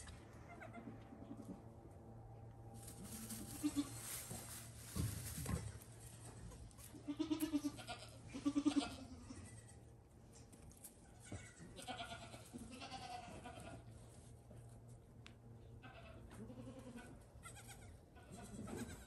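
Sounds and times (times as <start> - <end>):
goats bleating: 3.4 - 4.1, 6.9 - 9.5, 11.1 - 13.9, 15.8 - 19.0.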